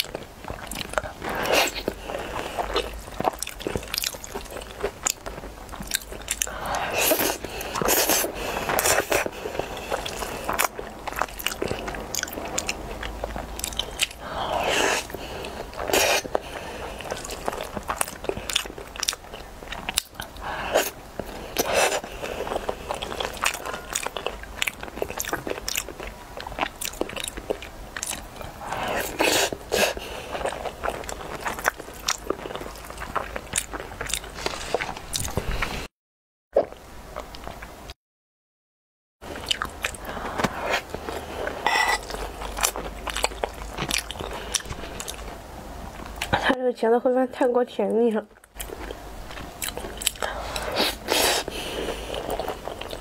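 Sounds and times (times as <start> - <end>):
wet chewing and lip-smacking: 0.0 - 35.8, 39.3 - 45.3, 48.3 - 53.0
loud slurps: 50.4 - 52.8.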